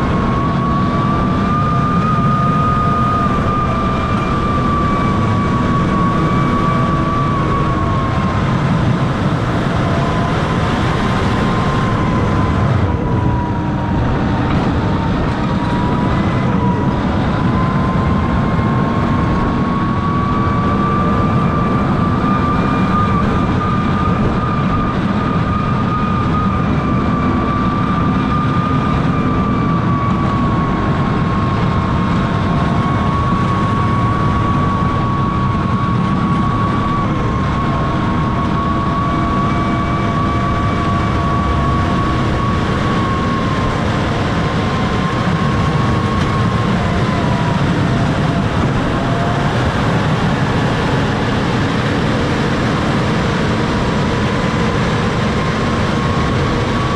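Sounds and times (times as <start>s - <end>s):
high whine: 0.0s - 56.9s
tractor diesel engine under load: 0.0s - 56.9s.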